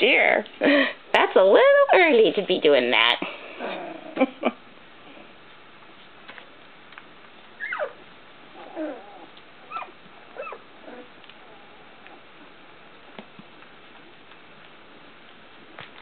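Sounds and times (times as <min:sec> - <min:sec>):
puppy whimpering: 0:07.6 - 0:12.6.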